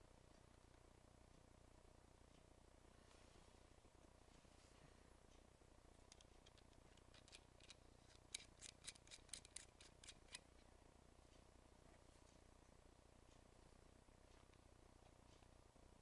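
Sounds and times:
small metal parts clicking: 6.1s - 10.4s.

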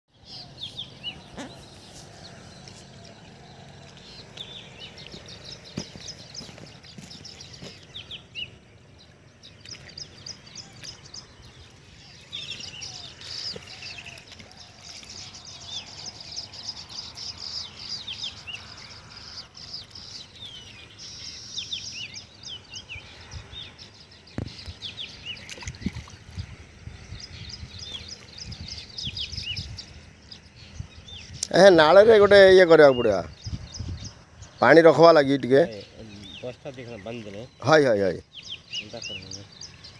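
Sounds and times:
small birds chirping: 0.1s - 39.9s
splashes of washing in water: 25.4s - 26.4s.

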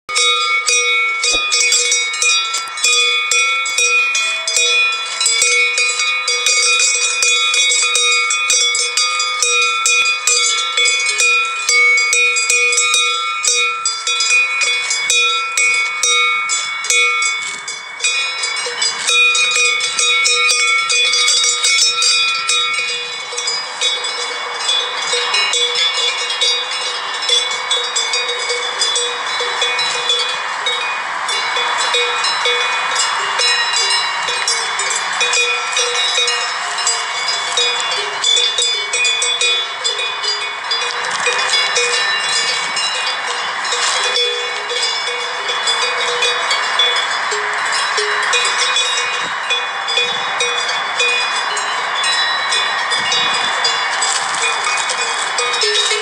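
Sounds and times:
sheep bells clanking: 0.1s - 56.0s.

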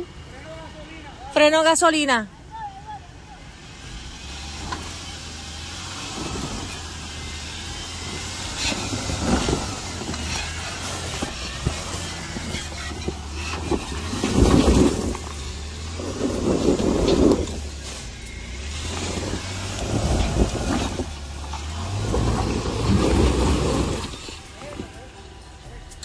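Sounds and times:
off-road vehicle engine running: 0.0s - 26.0s
knocks and scrapes on rocks: 6.0s - 25.2s.

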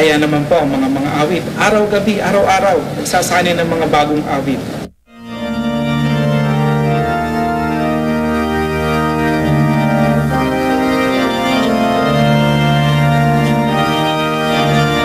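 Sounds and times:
pipe organ playing slow chords: 5.1s - 15.0s.

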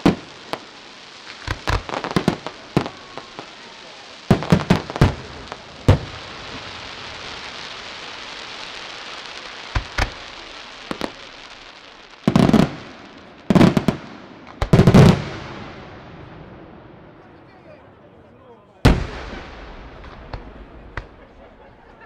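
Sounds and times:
firework hiss: 0.0s - 16.1s
firework bangs: 0.0s - 17.2s, 18.8s - 22.0s.

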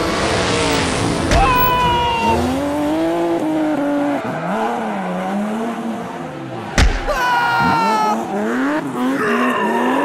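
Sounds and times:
engine revving: 0.0s - 6.8s, 7.6s - 10.0s
high tyre squeal: 0.6s - 2.7s, 7.3s - 10.0s.

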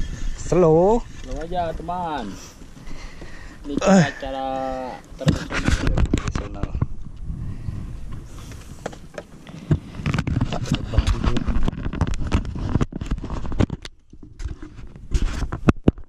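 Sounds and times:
wind rumble on microphone: 0.0s - 16.0s
knocks and scrapes on wooden boat: 5.2s - 7.0s, 8.2s - 16.0s.

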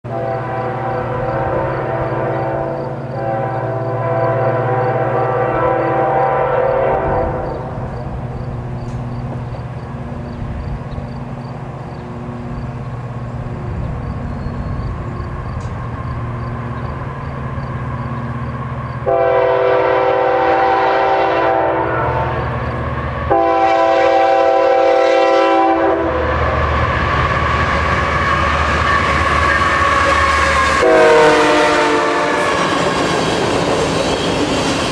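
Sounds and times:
locomotive horn blasts: 0.1s - 7.8s, 19.0s - 22.6s, 23.3s - 26.3s, 28.3s - 32.8s
diesel engines rumbling: 7.0s - 34.9s.

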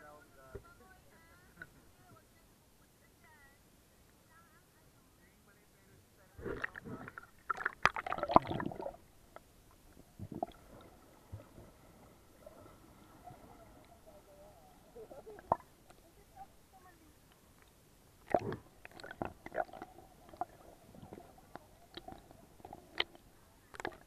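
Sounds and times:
muffled underwater sound: 0.0s - 9.1s, 9.8s - 17.6s, 18.2s - 24.0s
faint steady whine: 0.0s - 24.0s
seawater splashing and gurgling: 6.4s - 9.3s, 10.0s - 16.0s, 18.2s - 24.0s.

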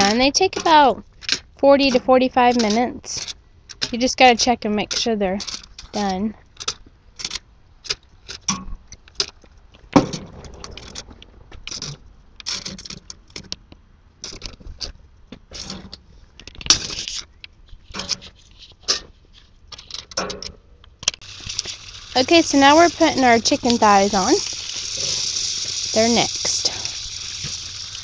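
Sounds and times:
metal tongs scraping grill: 0.0s - 8.5s, 16.6s - 17.3s, 17.9s - 20.6s, 21.2s - 28.0s
aluminium foil crinkling: 21.2s - 28.0s.

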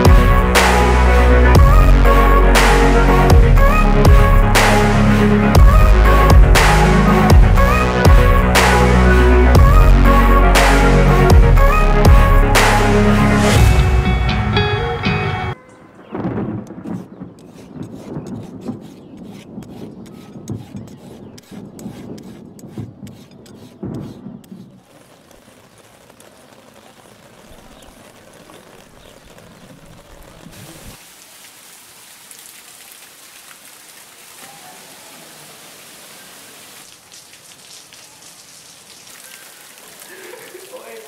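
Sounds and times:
heavy rain on hard surfaces: 0.0s - 14.3s, 24.2s - 41.0s
rolling thunder: 16.1s - 18.7s.

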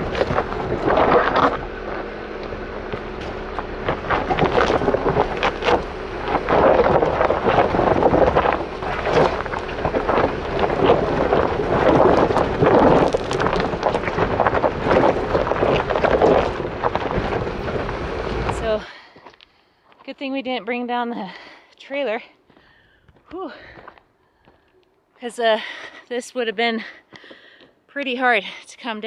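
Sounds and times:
wind buffeting microphone: 0.0s - 18.9s
stones popping under tyres: 0.0s - 20.6s
low steady hum: 0.0s - 29.0s
tyres crunching on gravel: 0.0s - 29.0s.

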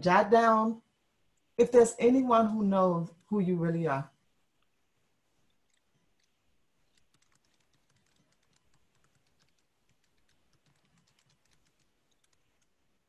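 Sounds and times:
keyboard typing: 5.6s - 12.9s.

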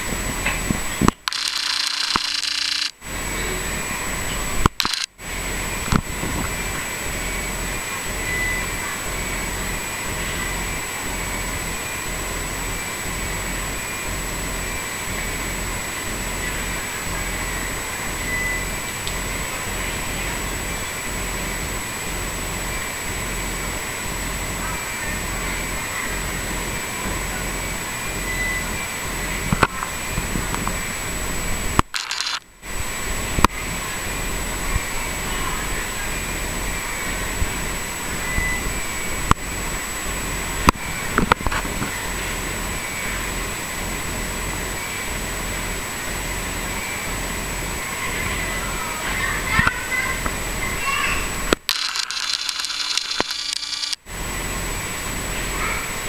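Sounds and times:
faint high whine: 0.0s - 56.0s
sharp clicks: 1.1s - 2.9s, 4.6s - 5.1s, 31.8s - 32.4s, 51.5s - 54.0s.

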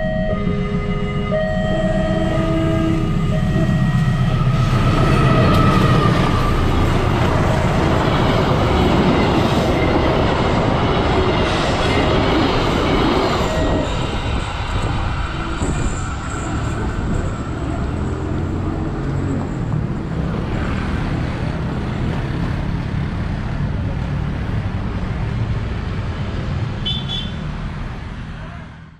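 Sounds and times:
train horn blasts: 0.0s - 6.6s.

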